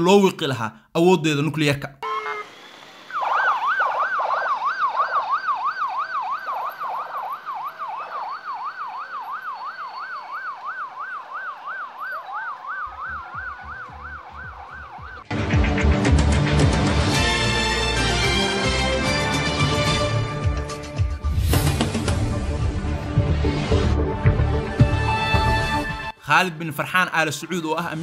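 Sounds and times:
siren in fast yelp: 2.0s - 2.5s, 3.1s - 15.3s
second siren rising: 2.0s - 15.4s
music: 12.9s - 26.2s.

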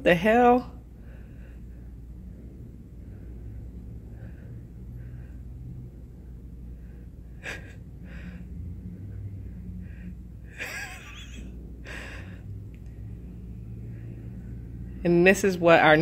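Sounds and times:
low street rumble: 0.0s - 16.0s
person laughing under breath: 7.4s - 7.9s, 10.5s - 12.3s.

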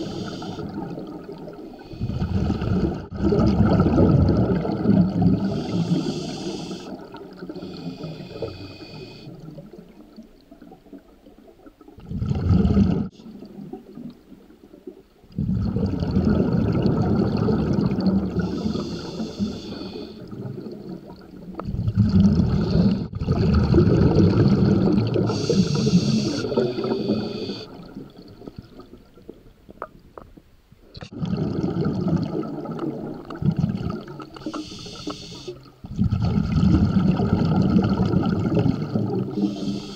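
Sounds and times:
diver breathing through regulator: 0.0s - 0.8s, 5.3s - 9.5s, 18.4s - 20.4s, 22.4s - 23.2s, 25.2s - 28.0s, 34.4s - 35.7s, 39.2s - 39.9s
bubbling gurgling exhalations: 0.0s - 11.0s, 11.9s - 14.1s, 15.3s - 30.4s, 31.0s - 39.9s.

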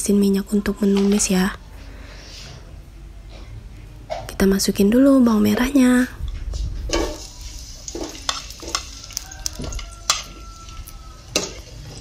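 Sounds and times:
shallots sizzling in hot oil: 6.8s - 12.0s
metal spoon scraping a pot: 6.9s - 12.0s.

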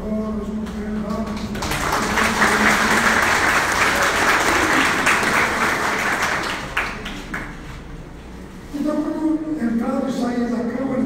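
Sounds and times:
audience applauding: 1.3s - 7.7s.

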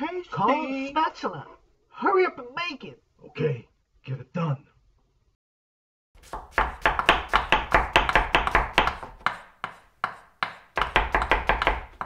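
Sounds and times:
knife chopping on cutting board: 6.2s - 12.0s.

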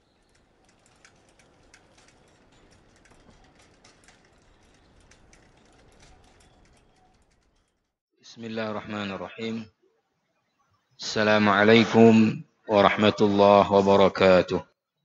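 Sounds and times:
faint crackling clicks: 0.0s - 8.0s.

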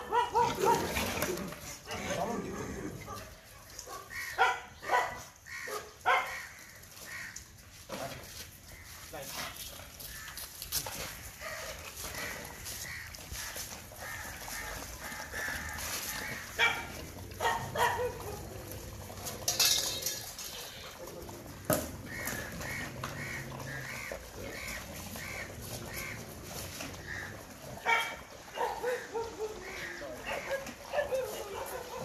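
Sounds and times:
dogs yelping and whining: 0.0s - 6.3s, 15.8s - 21.0s, 27.8s - 32.0s
bowls knocking and clattering: 15.7s - 27.4s.

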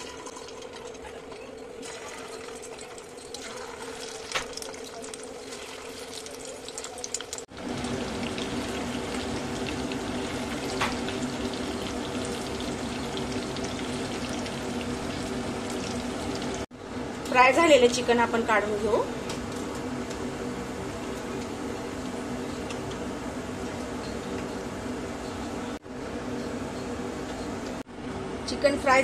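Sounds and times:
chicken sizzling in oil: 0.0s - 16.7s.

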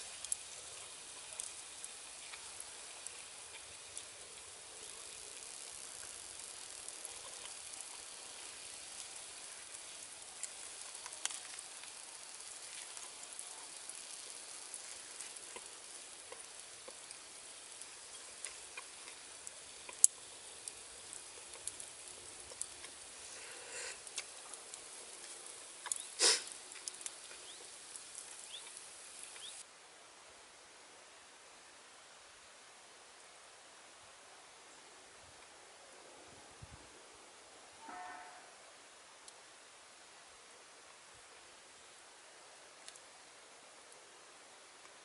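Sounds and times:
campfire crackling: 0.0s - 29.7s, 42.7s - 44.0s.

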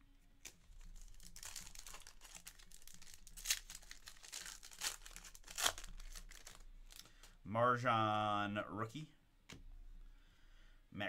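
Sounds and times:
foil wrapper tearing and crinkling: 0.4s - 7.1s
sharp foil crackles: 0.4s - 7.1s.

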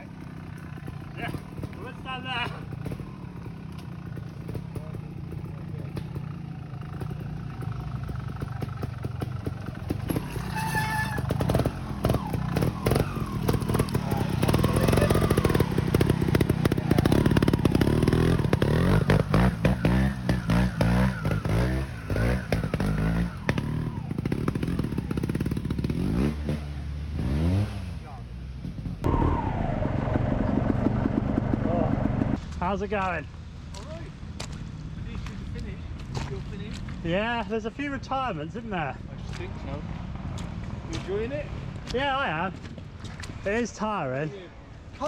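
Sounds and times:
two-stroke motorcycle engine revving: 0.0s - 32.4s.

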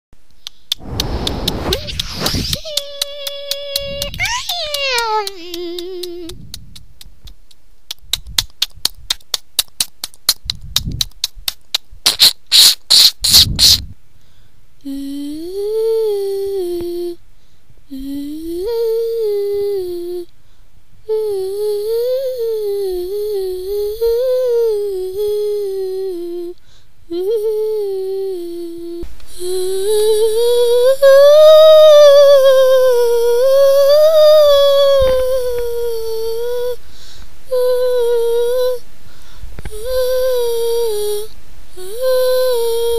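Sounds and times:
quick sharp clicks: 0.4s - 13.8s
child humming a tune: 2.5s - 6.5s, 14.8s - 17.2s, 17.9s - 20.3s, 21.1s - 36.8s, 37.5s - 38.8s, 39.6s - 42.9s.

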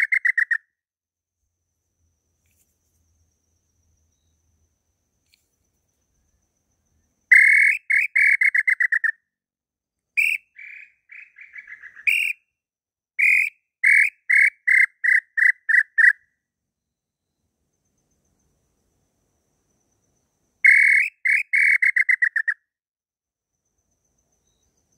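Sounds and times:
wooden bird call whistling: 0.0s - 0.6s, 7.3s - 9.2s, 10.2s - 12.4s, 13.2s - 16.2s, 20.6s - 22.6s.

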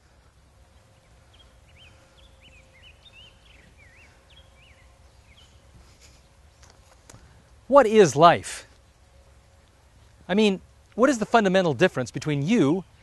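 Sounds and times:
songbird chirping: 0.0s - 13.0s
steady low rumble: 0.0s - 13.0s.

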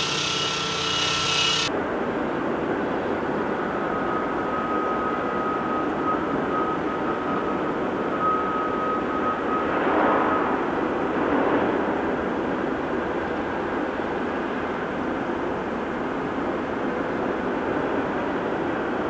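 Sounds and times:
thin high whine: 0.0s - 1.7s, 3.0s - 11.4s
diesel engine of heavy machinery: 0.0s - 19.0s.

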